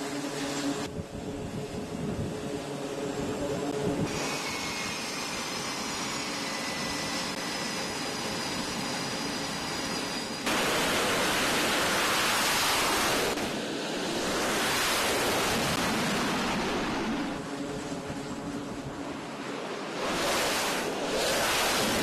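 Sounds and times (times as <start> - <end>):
high jet whine: 0.0 - 22.0
jet engine roaring: 0.0 - 22.0.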